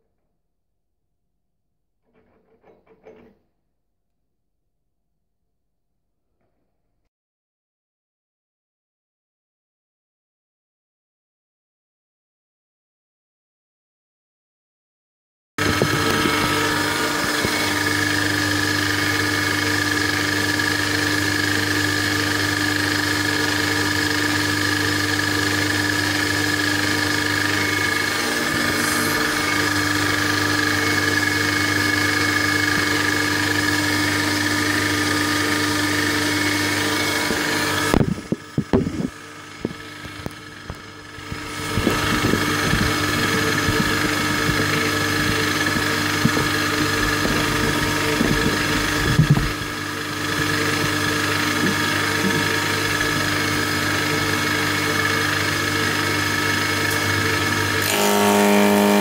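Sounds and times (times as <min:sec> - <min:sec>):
milling machine cutting steel: 0:15.6 - 0:59.0.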